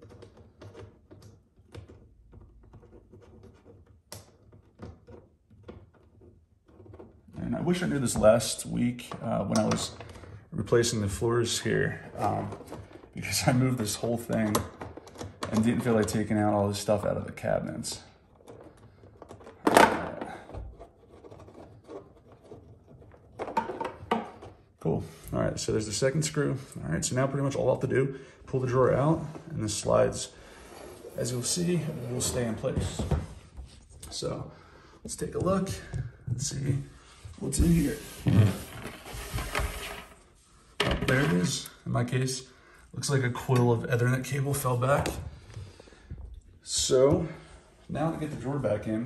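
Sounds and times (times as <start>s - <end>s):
screwdriver clicking and scraping: 20.7s - 23.2s.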